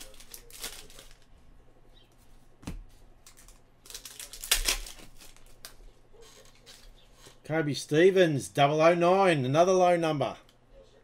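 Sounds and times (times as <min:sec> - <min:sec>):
cards being handled: 0:00.0 - 0:01.3
wrapper crinkling and tearing: 0:00.0 - 0:01.3, 0:03.2 - 0:06.9.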